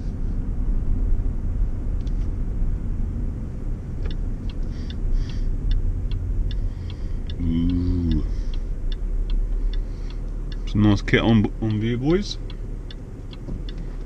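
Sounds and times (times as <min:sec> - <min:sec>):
engine and road rumble: 0:00.0 - 0:14.0
turn indicator ticking: 0:03.6 - 0:14.0.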